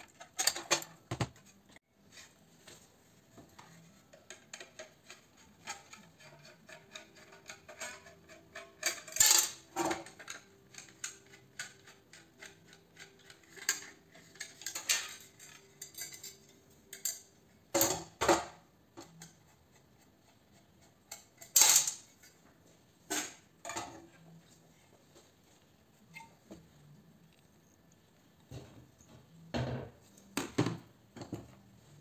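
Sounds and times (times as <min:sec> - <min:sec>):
metal clatters and knocks: 0:00.0 - 0:01.5.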